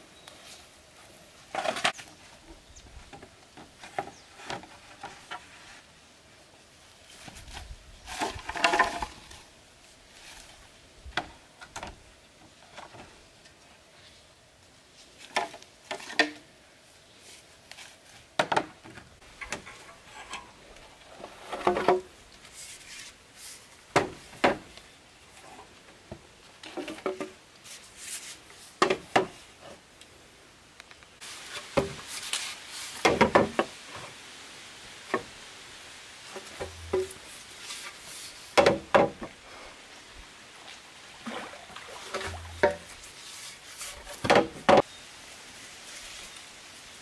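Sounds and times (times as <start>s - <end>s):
bamboo poles knocking together: 3.1s - 5.5s, 8.1s - 9.4s, 15.2s - 16.5s, 18.4s - 20.6s, 21.5s - 22.1s, 23.9s - 24.7s, 26.1s - 27.4s, 28.8s - 29.4s, 33.0s - 33.8s, 36.3s - 37.3s, 38.5s - 39.4s, 42.1s - 43.0s, 43.9s - 44.9s.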